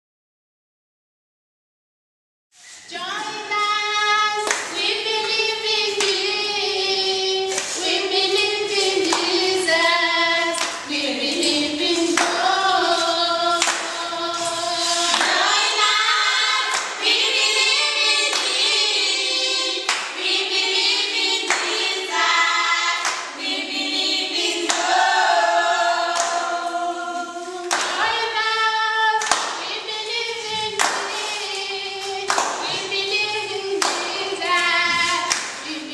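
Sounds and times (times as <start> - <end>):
group singing in unison: 2.9 - 35.9
hand claps: 4.4 - 6.3, 7.5 - 9.4, 10.4 - 14.0, 15.0 - 15.9, 16.6 - 17.4, 18.2 - 18.7, 19.8 - 20.2, 21.3 - 22.0, 22.9 - 23.4, 24.5 - 25.1, 26.0 - 26.5, 27.6 - 28.2, 29.2 - 29.8, 30.7 - 33.0, 33.8 - 35.7.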